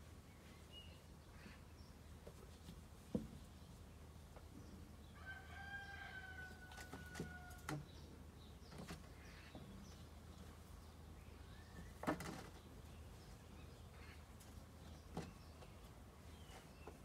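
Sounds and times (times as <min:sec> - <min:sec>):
rooster crowing: 0:05.1 - 0:07.7.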